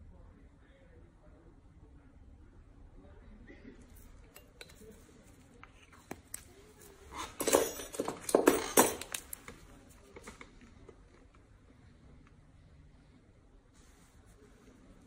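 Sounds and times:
gloved hands rustling and knocking tools: 3.9 - 11.4.

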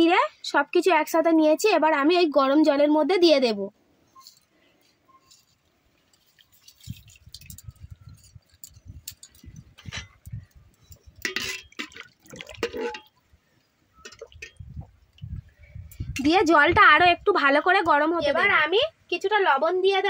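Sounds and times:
spices splashing into water: 11.2 - 13.2.

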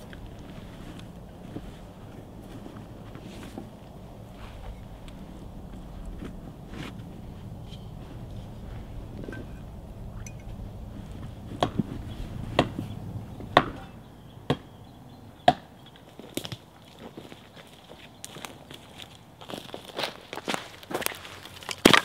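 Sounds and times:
low steady rumble: 0.0 - 15.3.

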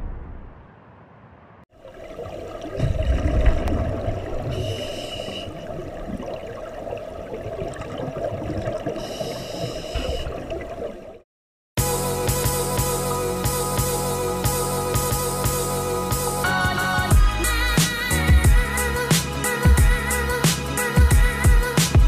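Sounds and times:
exhaled air bubbling: 1.8 - 11.2
regulator hissing inhalations: 4.5 - 5.6, 9.0 - 10.2.

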